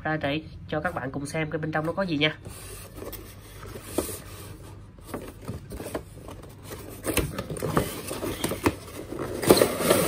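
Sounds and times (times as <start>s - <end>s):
cardboard and plastic scrapes and clicks: 2.4s - 10.0s.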